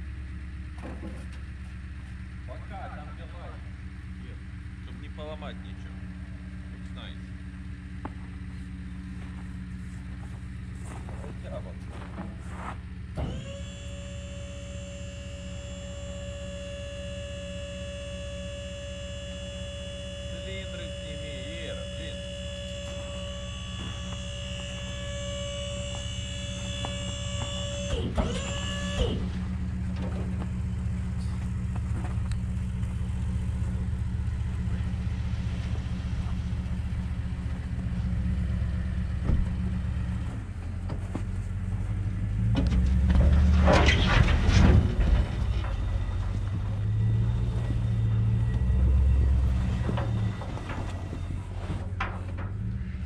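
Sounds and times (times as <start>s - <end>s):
pickup engine idling: 0.0s - 43.4s, 45.0s - 53.0s
hydraulic pump whining: 13.1s - 41.1s, 41.7s - 53.0s.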